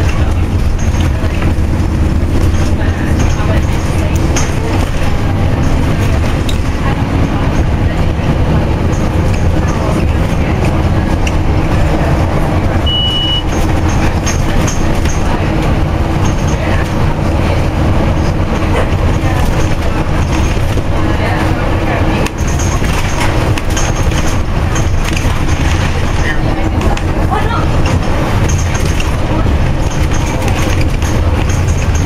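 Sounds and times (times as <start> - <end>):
bus engine rumble: 0.0 - 32.0
interior fittings rattling: 0.0 - 32.0
brief high beep: 12.8 - 13.5.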